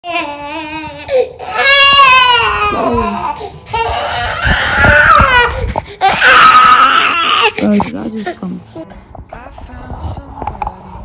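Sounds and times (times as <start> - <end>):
toddler crying: 0.0 - 7.8.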